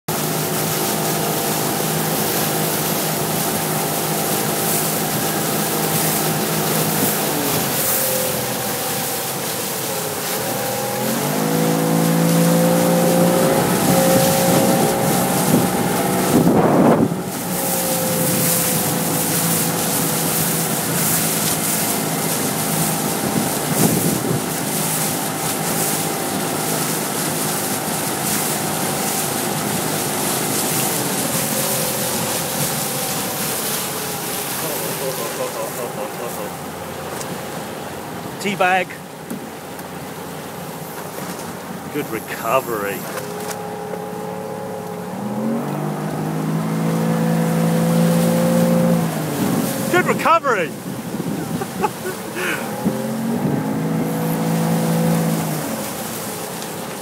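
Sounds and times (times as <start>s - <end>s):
outboard motor running: 0.1s - 57.0s
water rushing past: 0.1s - 57.0s
wind buffeting microphone: 11.6s - 34.4s, 48.9s - 50.0s, 50.7s - 55.4s.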